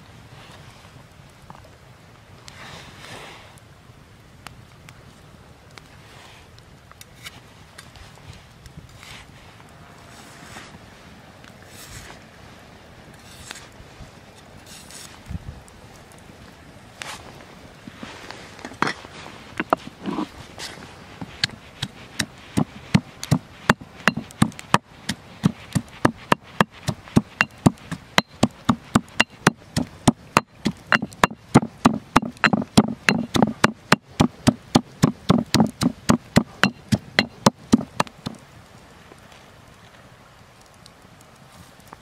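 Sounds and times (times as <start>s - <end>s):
stone pestle pounding in mortar: 22.9s - 24.8s, 25.4s - 38.4s.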